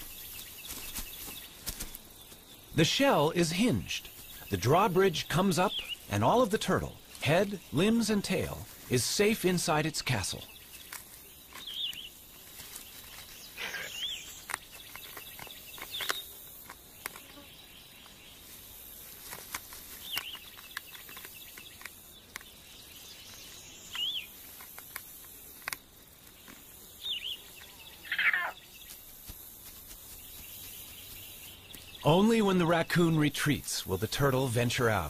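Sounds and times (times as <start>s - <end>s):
bird chirps: 0.0s - 19.0s, 19.9s - 24.5s, 26.3s - 29.0s, 30.1s - 35.0s
long bird call: 27.0s - 28.7s.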